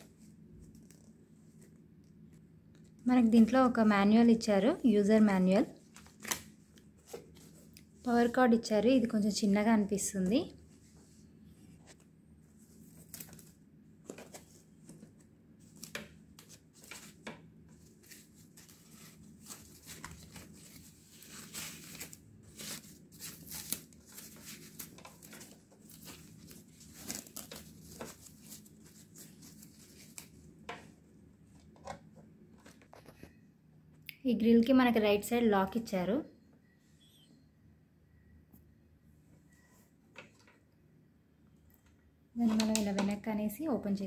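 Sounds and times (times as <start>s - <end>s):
packaging wrap rustling: 12.6s - 30.6s.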